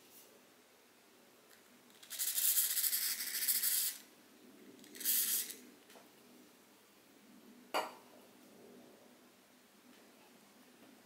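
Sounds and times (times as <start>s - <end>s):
aerosol spray can hissing: 5.0s - 5.6s.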